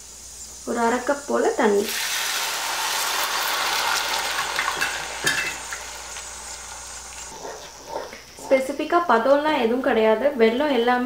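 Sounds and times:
water sizzling in hot pan: 0.0s - 7.8s.

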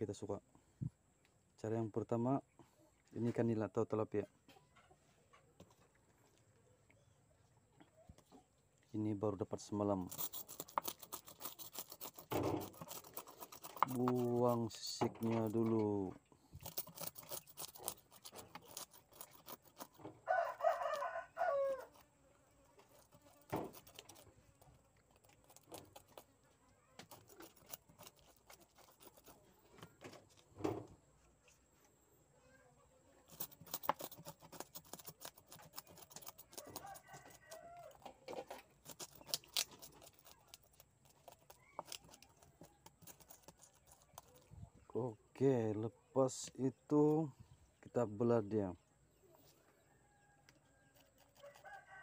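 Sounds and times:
knife scraping fish scales: 9.9s - 14.8s, 16.5s - 21.1s, 22.8s - 24.4s, 25.0s - 26.3s, 27.0s - 29.4s, 33.3s - 44.5s, 50.9s - 51.8s
rooster crowing: 20.2s - 22.0s, 36.5s - 38.1s, 49.8s - 52.0s.

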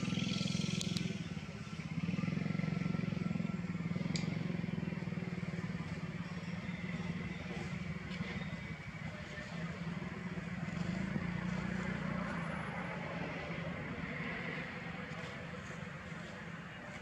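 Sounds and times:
small engine running: 0.0s - 12.9s.

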